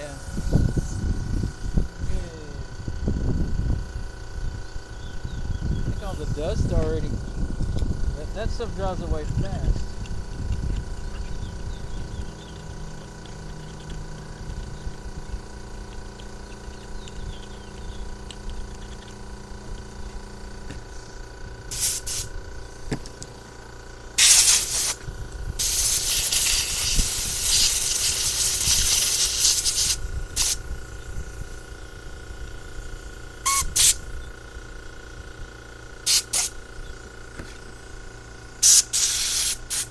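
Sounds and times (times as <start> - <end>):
spray nozzle hissing blasts: 20.9 - 22.9, 24.2 - 31.6, 33.0 - 34.1, 36.0 - 36.6, 38.6 - 39.9.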